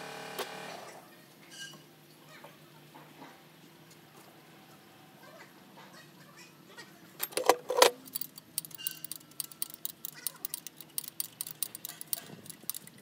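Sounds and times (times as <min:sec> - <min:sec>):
ratchet wrench clicking: 0:08.0 - 0:13.0.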